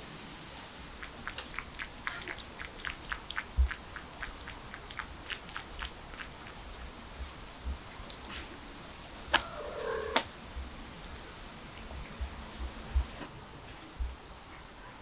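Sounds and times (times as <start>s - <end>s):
kitten lapping water: 0.9s - 8.3s.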